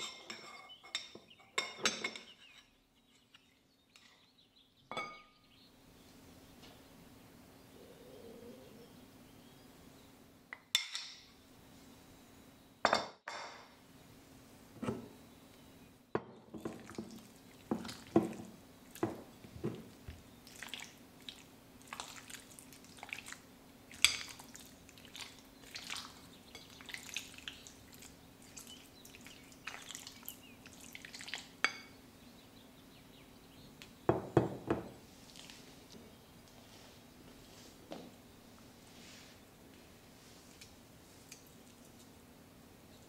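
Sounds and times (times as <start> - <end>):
faint steady hum: 0.9 - 13.0, 13.6 - 43.0
spatula squelching in chicken: 20.4 - 31.5.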